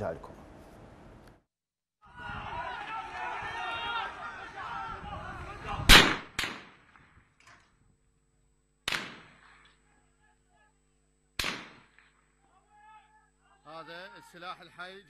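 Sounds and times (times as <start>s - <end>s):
voices: 2.1s - 6.0s, 12.4s - 15.0s
gunshots echoing: 5.9s - 7.0s, 8.9s - 9.7s, 11.4s - 12.2s.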